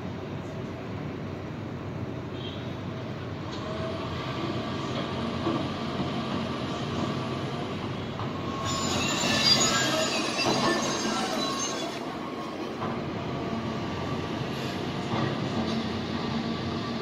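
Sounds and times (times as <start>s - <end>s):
high metallic squealing: 8.4s - 12.5s.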